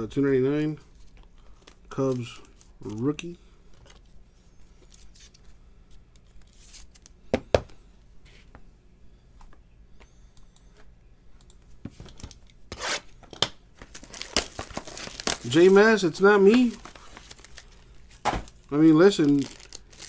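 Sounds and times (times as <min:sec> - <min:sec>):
cards rustling and scraping: 0:00.9 - 0:07.2, 0:13.8 - 0:20.0.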